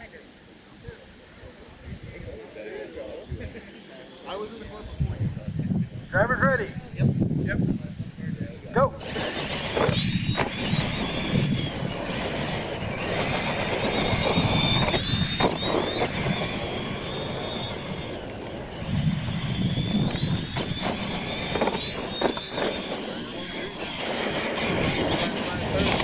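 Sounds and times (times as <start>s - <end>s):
toy truck motor whine: 9.0s - 26.0s.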